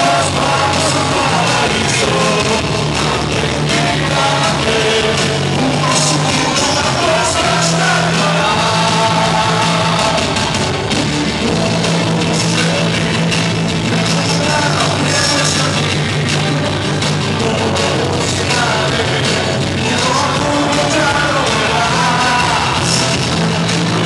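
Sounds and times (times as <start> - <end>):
man singing into a microphone: 0.0 - 10.4, 11.4 - 24.0
loud rock music: 0.0 - 24.0.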